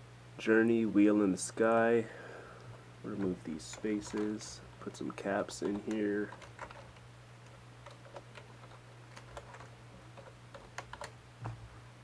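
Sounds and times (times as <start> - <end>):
steady low hum: 0.0 - 12.0
keyboard keystrokes clicking: 3.2 - 11.2.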